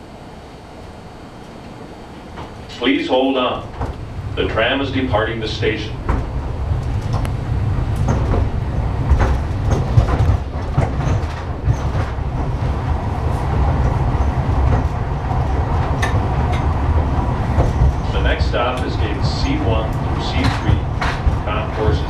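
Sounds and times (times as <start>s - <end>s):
tram car low rumble: 0.0s - 22.0s
clicks and clacks: 6.0s - 22.0s.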